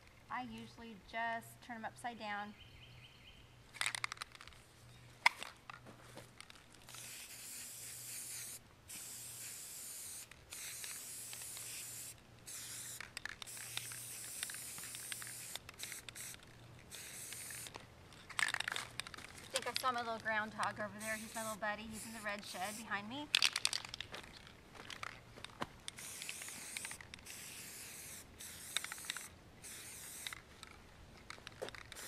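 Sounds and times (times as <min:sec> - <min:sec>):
spray paint can hissing: 0:06.8 - 0:17.8, 0:18.4 - 0:23.8, 0:25.9 - 0:30.5, 0:31.5 - 0:32.0.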